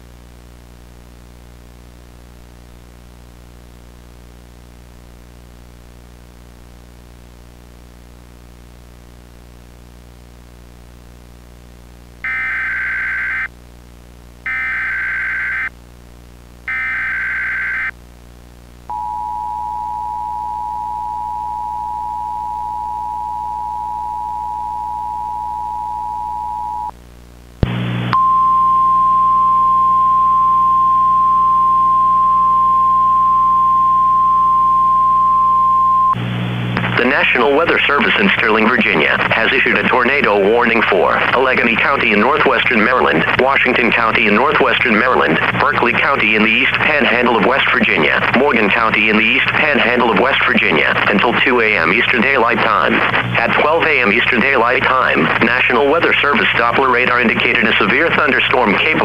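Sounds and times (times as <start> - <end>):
two-tone attention signal: 18.9 - 26.9, 28.1 - 36.2
burst of static: 27.4 - 28.2, 36.1 - 59.0.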